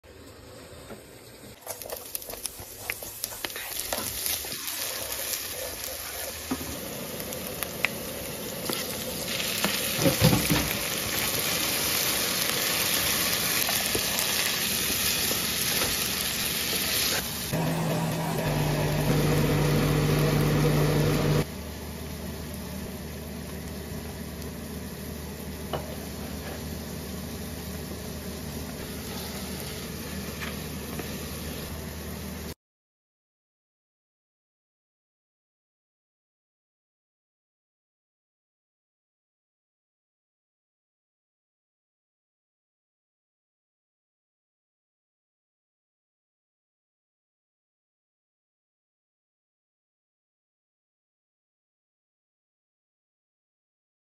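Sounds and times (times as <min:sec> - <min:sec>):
spatula stirring and scraping: 0:01.6 - 0:06.8
food sizzling in a frying pan: 0:01.6 - 0:32.5.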